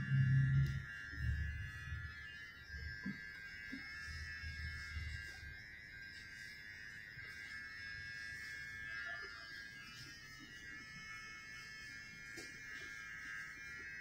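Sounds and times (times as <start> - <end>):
electric hair clippers whining: 0.0 - 14.0.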